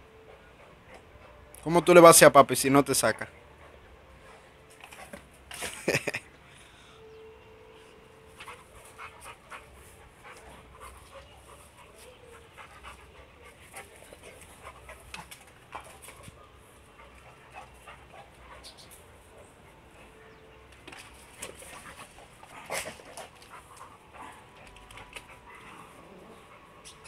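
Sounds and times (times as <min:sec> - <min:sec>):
dog panting: 0:00.1 - 0:01.6, 0:08.3 - 0:20.4, 0:21.4 - 0:27.0.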